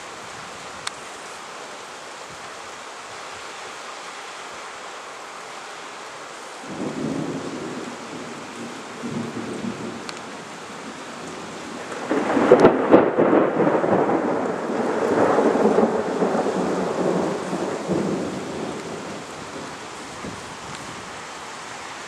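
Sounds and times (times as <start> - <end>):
steady background hiss: 0.0 - 22.0
thunder rumbling and cracking: 6.7 - 10.4, 11.1 - 20.4.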